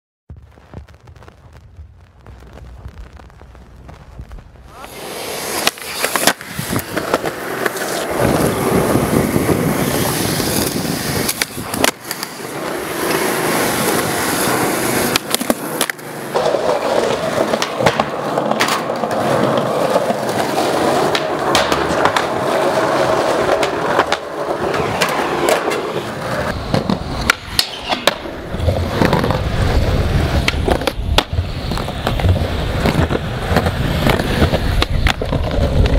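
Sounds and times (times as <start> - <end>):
skateboard wheels rolling on concrete: 0.3 - 35.9
skateboard cracks and clacks: 4.9 - 35.9.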